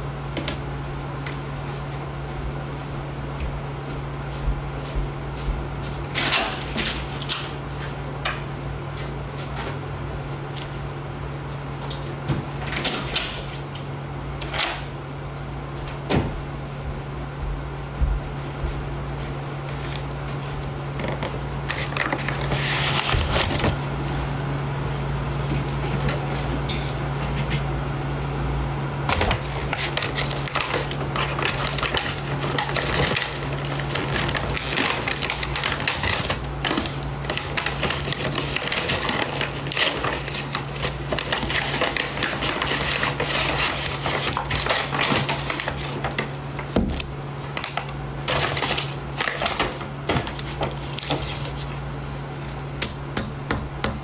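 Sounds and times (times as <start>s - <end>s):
paper bag rustling: 19.2s - 24.6s, 29.3s - 46.8s, 47.4s - 52.4s.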